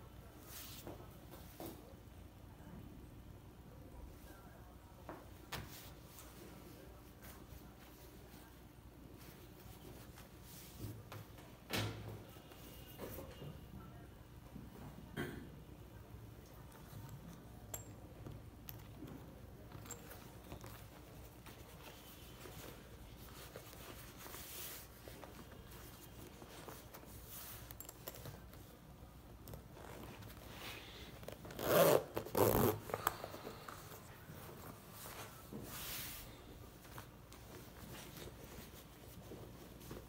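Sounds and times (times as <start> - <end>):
leather handling: 18.6 - 28.7, 29.4 - 36.2
metal zipper zipping: 31.2 - 33.1.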